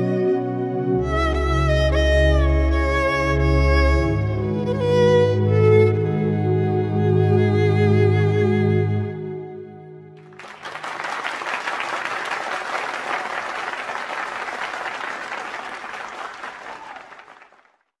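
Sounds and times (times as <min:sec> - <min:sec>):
audience clapping: 0:10.2 - 0:18.0.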